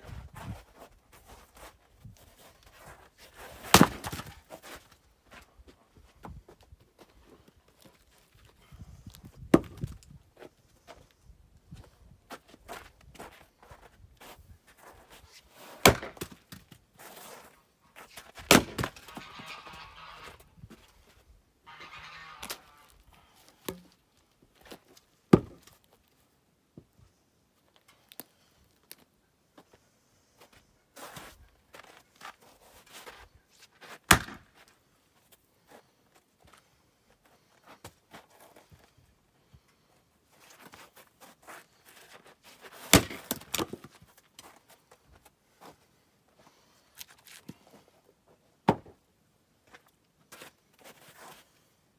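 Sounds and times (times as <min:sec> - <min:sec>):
axe chopping wood: 0:03.6 - 0:04.4, 0:09.5 - 0:09.9, 0:15.8 - 0:16.7, 0:18.4 - 0:20.3, 0:23.6 - 0:24.0, 0:25.3 - 0:25.8, 0:34.1 - 0:34.5, 0:42.8 - 0:43.9.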